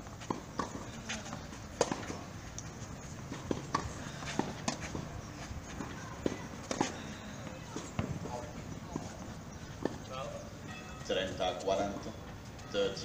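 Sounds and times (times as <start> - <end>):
racket hitting tennis ball: 0.3 - 2.3, 3.2 - 5.2.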